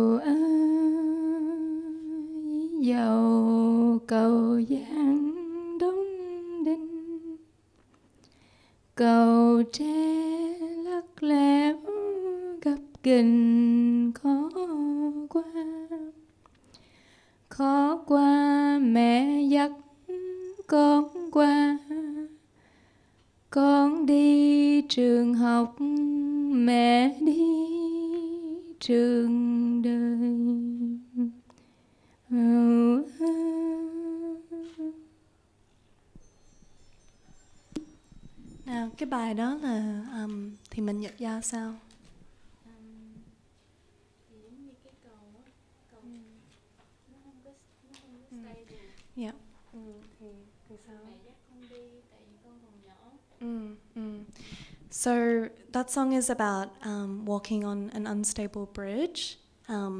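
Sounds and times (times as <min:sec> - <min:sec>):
woman singing unaccompanied: 0:00.0 - 0:07.5, 0:09.0 - 0:16.3, 0:17.5 - 0:22.5, 0:23.5 - 0:31.5, 0:32.3 - 0:35.2, 0:37.8 - 0:43.4, 0:53.2 - 0:59.9.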